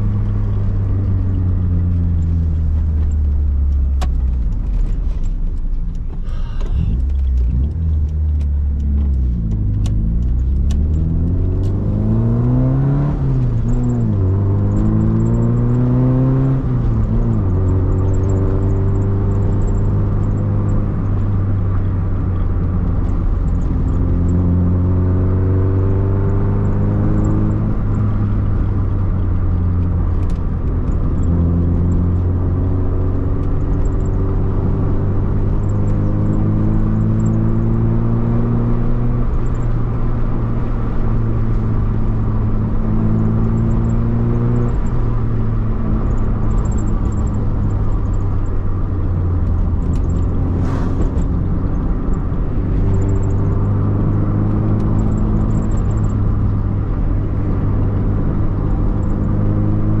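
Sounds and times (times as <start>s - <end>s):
road rumble: 0.0s - 60.0s
vehicle engine accelerating: 0.0s - 60.0s
brief hiss: 50.6s - 51.0s.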